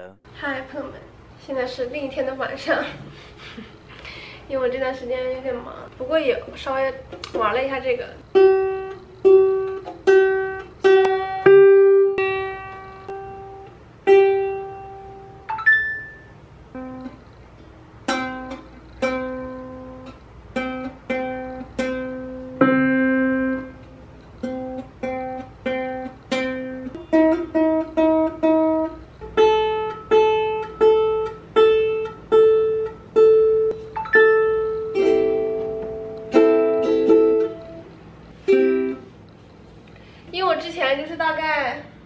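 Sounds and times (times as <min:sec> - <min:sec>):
ukulele strings plucked: 0:08.4 - 0:16.1, 0:18.0 - 0:37.9, 0:38.5 - 0:39.1.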